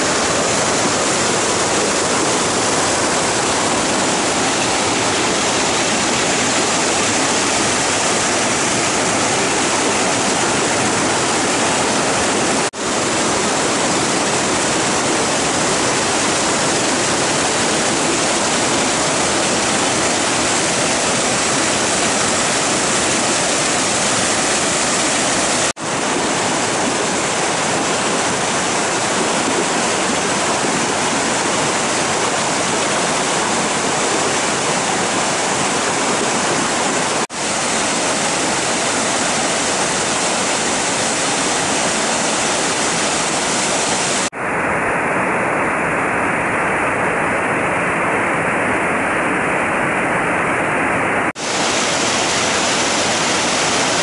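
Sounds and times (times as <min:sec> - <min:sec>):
water rushing over boulders: 0:00.0 - 0:54.0.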